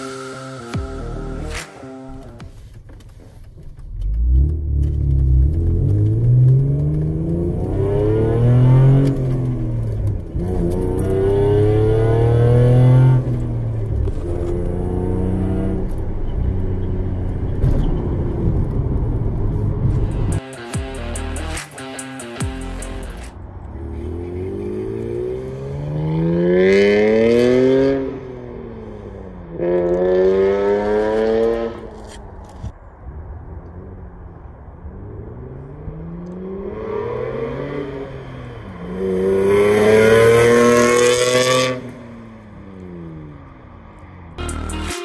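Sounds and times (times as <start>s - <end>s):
car engine accelerating hard: 3.9s - 21.6s.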